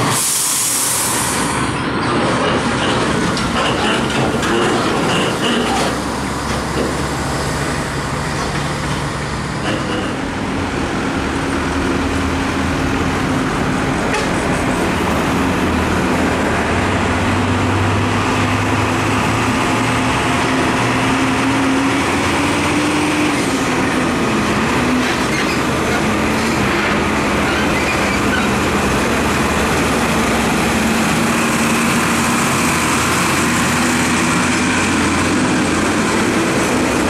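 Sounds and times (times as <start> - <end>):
truck diesel engine passing: 0.0 - 37.0.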